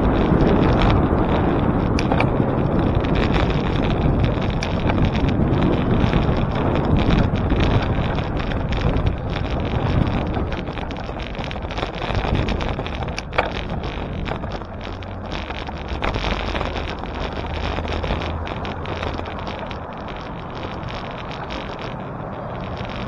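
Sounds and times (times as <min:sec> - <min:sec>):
street traffic: 0:00.0 - 0:23.0
wind on microphone: 0:00.0 - 0:23.0.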